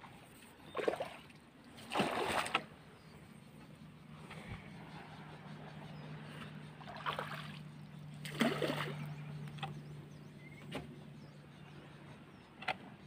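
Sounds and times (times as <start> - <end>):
boat engine humming: 0.0 - 13.0
water splashing: 0.7 - 2.7, 6.8 - 9.2.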